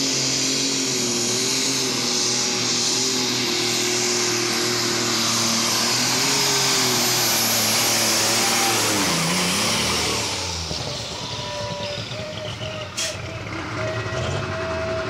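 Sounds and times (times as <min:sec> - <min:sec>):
tractor diesel engine under load: 0:00.0 - 0:15.0
turbo whistle: 0:11.1 - 0:15.0.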